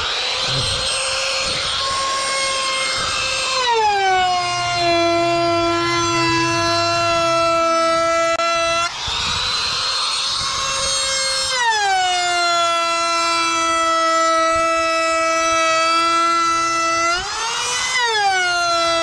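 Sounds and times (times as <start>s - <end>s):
electric motor whining: 0.0s - 12.7s.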